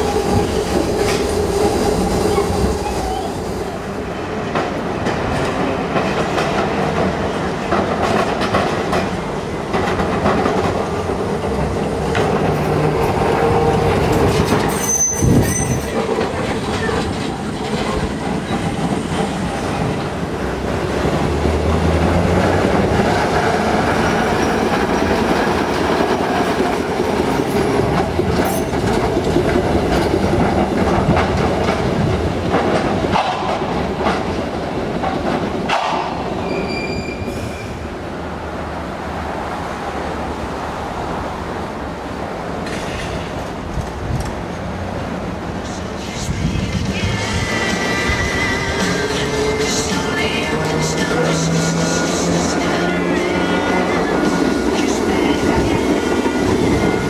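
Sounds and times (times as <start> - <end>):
streetcar running on rails: 0.0 - 57.0
wheels squealing: 14.1 - 17.2, 36.4 - 37.8.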